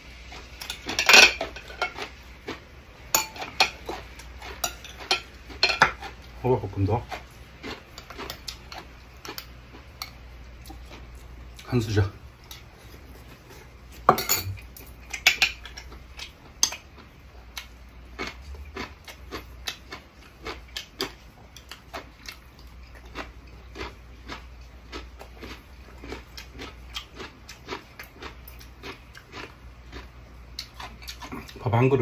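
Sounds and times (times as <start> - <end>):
cutlery clinking on ceramic bowl: 0.6 - 2.0, 3.1 - 4.0, 4.6 - 6.1, 14.1 - 15.9.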